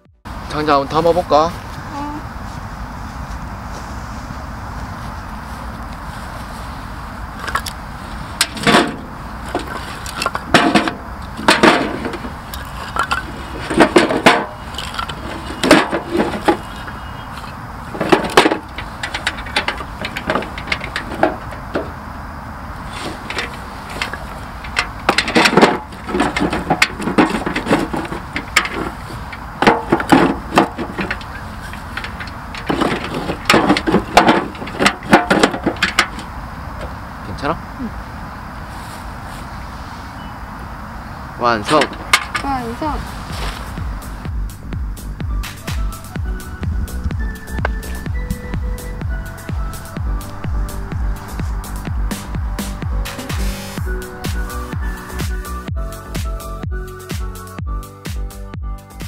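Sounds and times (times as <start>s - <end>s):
logs knocking into metal bin: 8.4s - 17.0s, 17.9s - 22.0s, 23.0s - 36.3s.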